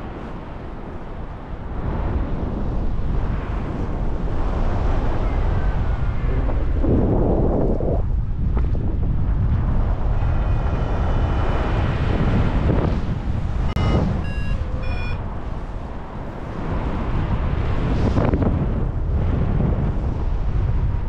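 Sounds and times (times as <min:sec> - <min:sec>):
wind rushing over microphone: 0:00.0 - 0:21.0
short electronic beeps: 0:13.7 - 0:15.2.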